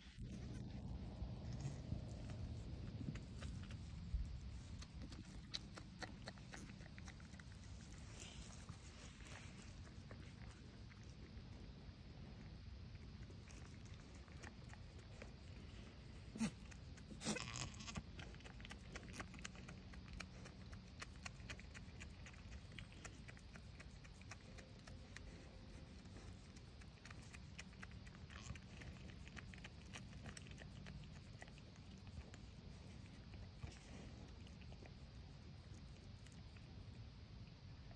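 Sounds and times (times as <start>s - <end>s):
faint rustling: 0.0s - 21.3s
small ticking sounds: 16.3s - 37.9s.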